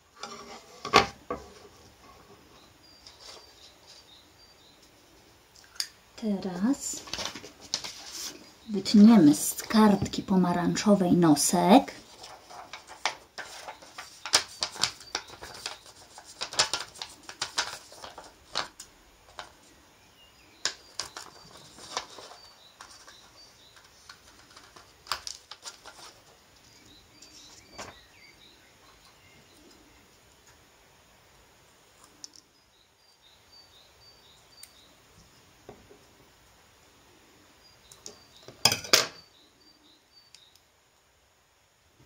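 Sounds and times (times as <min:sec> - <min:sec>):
paper rustling: 0:07.0 - 0:08.5, 0:11.8 - 0:19.7, 0:20.6 - 0:26.4.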